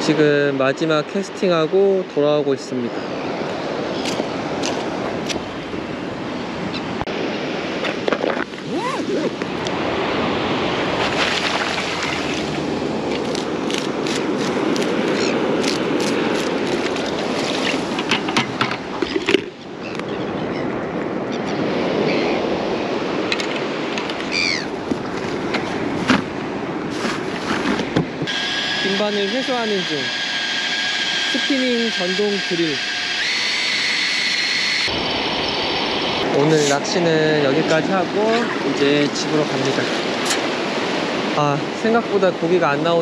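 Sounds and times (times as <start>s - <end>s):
wind: 0.0s - 43.0s
breaking surf: 7.0s - 19.4s, 34.9s - 43.0s.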